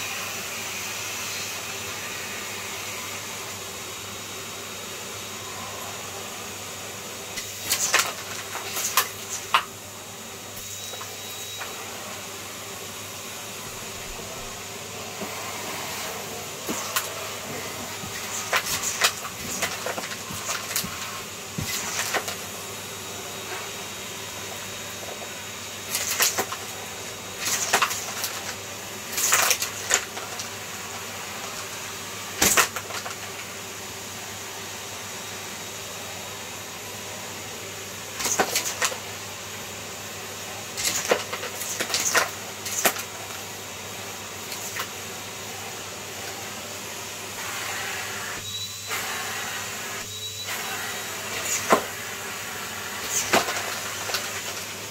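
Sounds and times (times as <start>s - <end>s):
vacuum cleaner running: 0.0s - 54.9s
thin high whistle: 10.6s - 11.9s, 48.4s - 50.8s.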